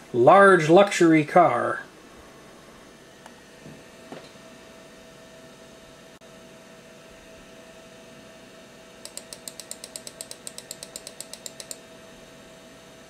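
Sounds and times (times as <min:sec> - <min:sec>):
computer humming: 0:09.0 - 0:11.9
mouse button clicking: 0:09.1 - 0:11.8.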